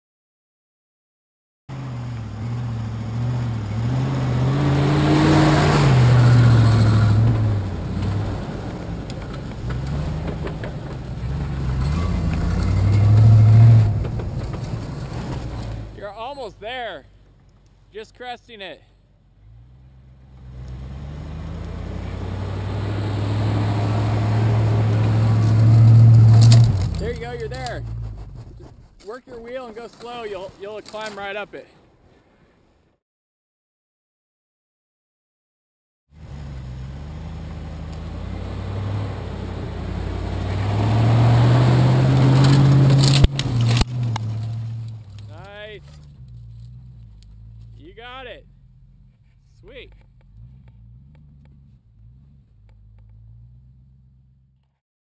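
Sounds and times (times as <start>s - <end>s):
car engine pulling uphill: 1.7s - 31.3s, 36.1s - 54.8s
tyres churning wet snow: 2.3s - 17.0s, 20.4s - 32.3s, 36.2s - 47.0s.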